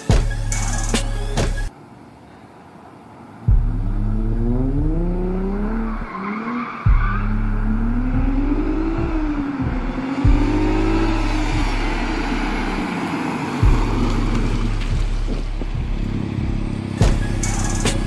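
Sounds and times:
loud low thumps: 3.5 - 5.7, 6.9 - 12.9, 13.6 - 17.5
car accelerating hard: 3.6 - 18.0.

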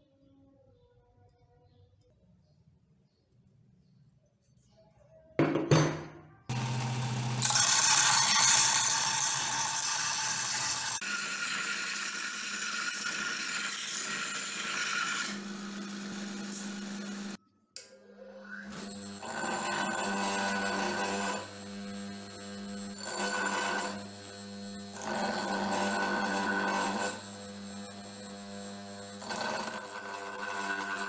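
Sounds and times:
belt sander grinding metal: 6.5 - 17.4, 18.7 - 31.0.

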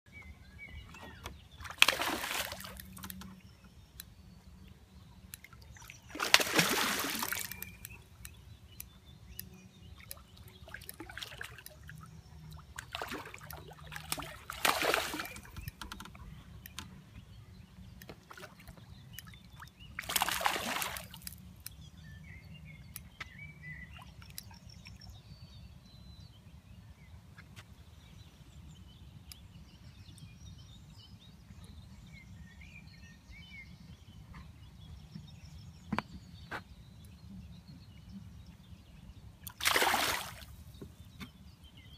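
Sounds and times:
fish splashing at water surface: 1.7 - 3.1, 6.1 - 7.7, 12.9 - 15.5, 20.0 - 21.3, 39.5 - 40.5.

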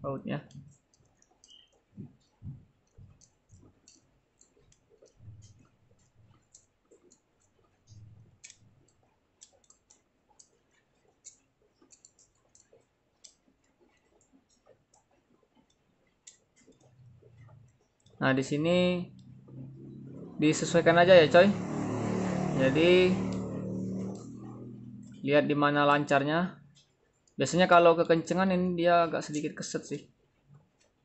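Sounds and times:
screwdriver clicks and ticks: 0.5 - 18.2.

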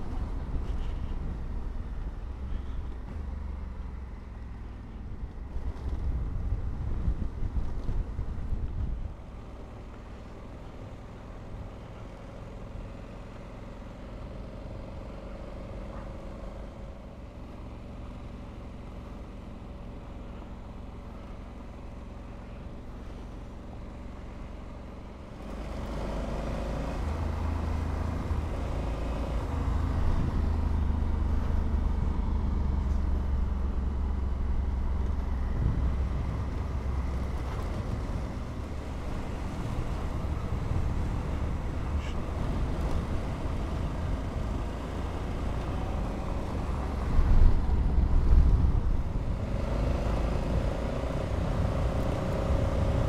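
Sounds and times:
road noise: 0.0 - 53.0
wind noise: 5.1 - 9.2, 29.6 - 53.0.

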